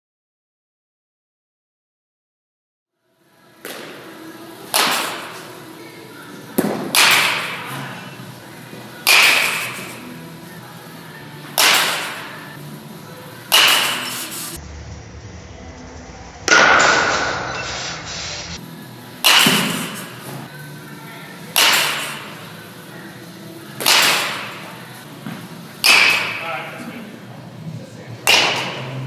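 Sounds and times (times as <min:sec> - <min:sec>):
bat cracking on baseball: 0:03.6 - 0:05.6, 0:06.5 - 0:07.9, 0:09.0 - 0:10.0, 0:11.5 - 0:12.4, 0:13.4 - 0:14.4, 0:19.2 - 0:20.4, 0:21.5 - 0:22.5, 0:23.8 - 0:26.4, 0:28.2 - 0:29.0.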